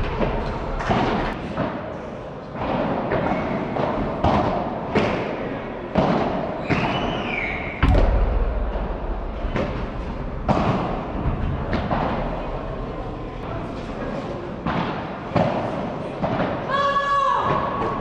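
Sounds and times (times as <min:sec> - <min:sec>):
heavy thud: 0:07.8 - 0:13.1.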